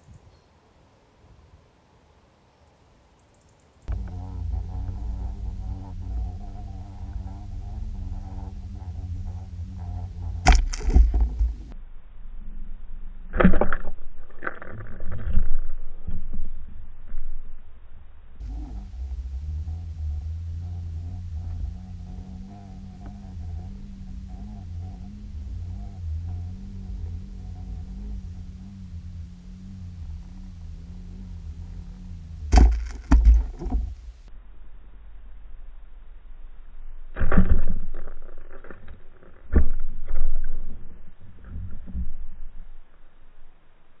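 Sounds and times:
faint wavering hum: 3.2 - 44.0
low underwater rumble: 3.9 - 44.0
rushing water underwater: 9.2 - 11.8
dull underwater knocks: 32.5 - 34.1.

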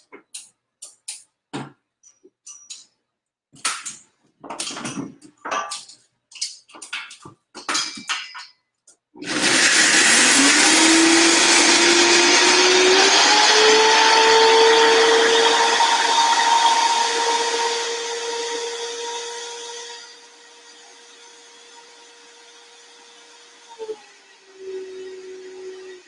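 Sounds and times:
clicks and knocks: 3.6 - 9.0
blender running: 9.2 - 26.0.

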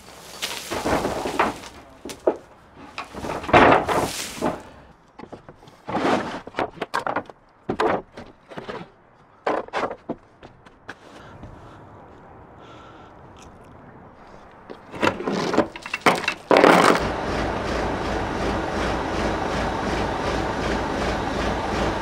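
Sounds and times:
scraping noise: 0.0 - 4.9
knocks and thuds: 0.4 - 4.8.

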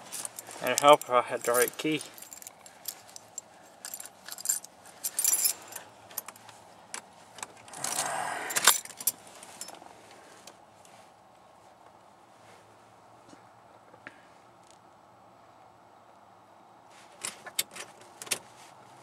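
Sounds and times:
keys jangling on a keyring: 0.0 - 6.4, 7.8 - 9.8.

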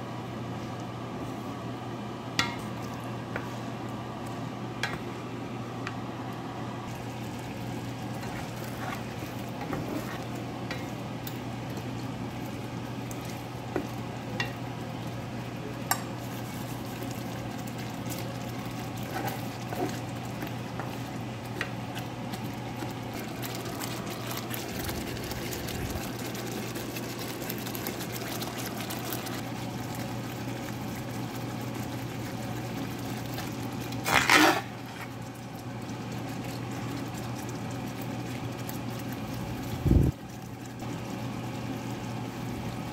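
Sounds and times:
steady low hum: 0.0 - 42.9
gravy simmering in a pan: 2.1 - 42.9
ladle scooping through gravy: 6.9 - 14.2, 16.1 - 39.7.

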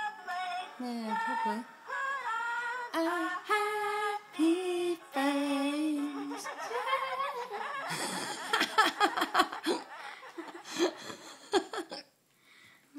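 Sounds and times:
person laughing: 6.0 - 12.0.

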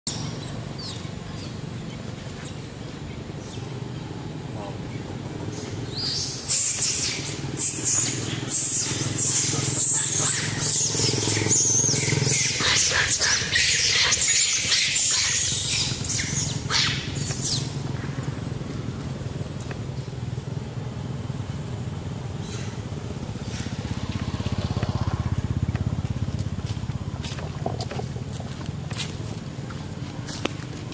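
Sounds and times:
low engine hum: 0.1 - 30.9
monkeys screaming: 5.5 - 18.4.

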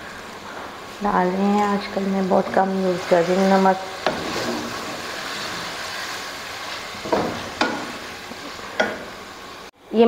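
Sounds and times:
meat sizzling in oil: 0.0 - 9.7
wooden spatula stirring: 1.5 - 9.1
spatula knocking on pan: 7.0 - 7.9, 8.8 - 9.1.

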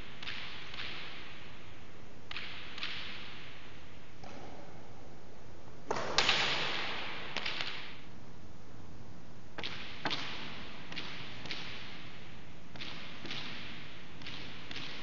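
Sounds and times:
ball cracking off walls with echo: 4.2 - 5.0, 5.8 - 8.1, 9.6 - 15.0.

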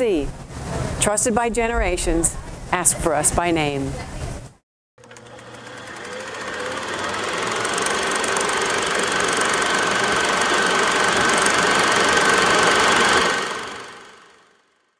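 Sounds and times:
film projector clatter: 5.0 - 14.5.

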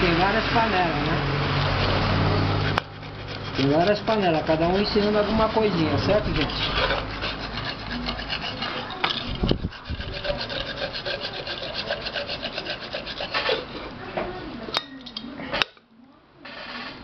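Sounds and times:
sandpaper rasping on metal: 3.0 - 13.7.

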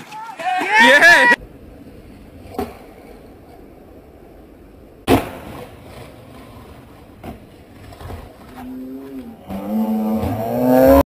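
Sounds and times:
long drawn-out yells: 0.0 - 1.4.

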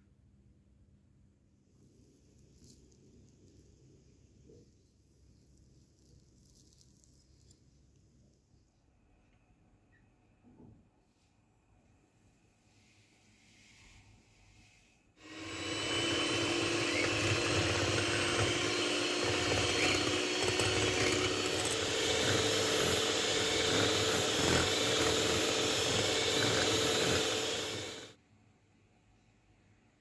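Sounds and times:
electric hand mixer running: 15.2 - 28.1.

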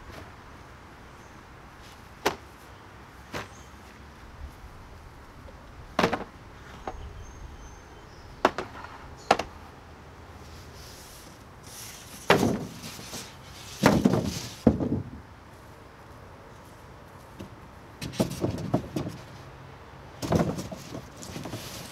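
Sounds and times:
lumber knocking on sawhorses: 6.0 - 7.0, 8.4 - 9.5, 13.8 - 15.2
panel clattering thuds: 13.8 - 15.1.

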